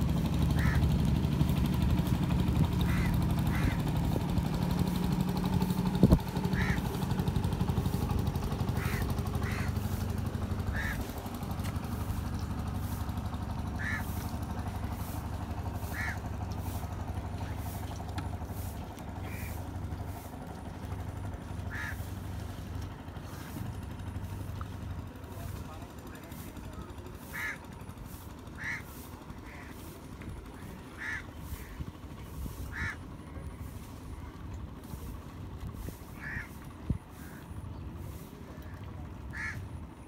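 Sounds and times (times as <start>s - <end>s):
boat engine humming: 0.0s - 40.0s
bird calls: 8.7s - 10.0s, 10.7s - 11.2s, 13.7s - 14.2s.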